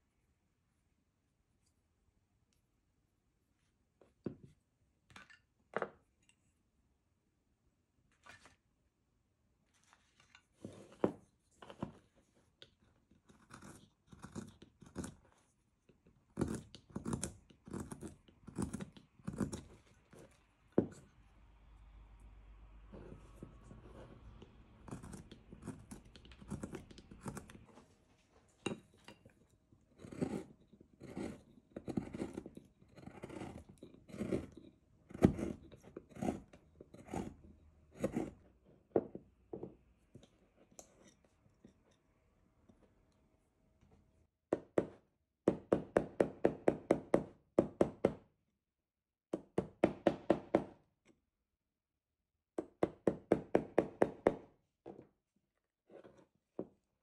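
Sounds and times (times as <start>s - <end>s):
gouge cutting wood: 30.0s - 37.4s.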